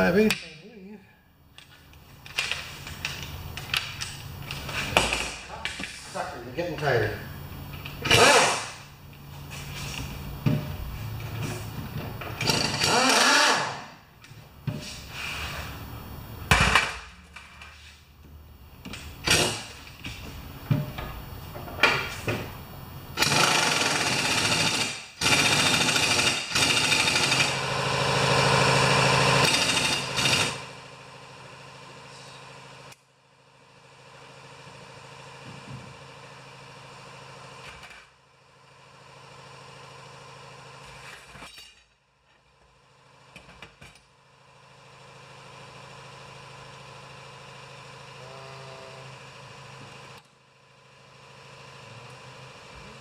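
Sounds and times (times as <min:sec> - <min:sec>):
impact wrench hammering: 0:07.8 - 0:08.9, 0:12.2 - 0:13.9, 0:18.8 - 0:21.1, 0:23.2 - 0:27.6, 0:29.4 - 0:30.8.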